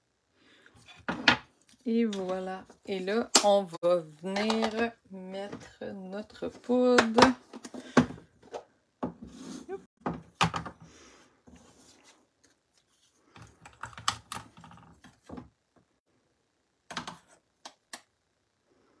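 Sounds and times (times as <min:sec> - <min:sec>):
plastic boxes clicking and knocking: 0:04.3 - 0:04.9.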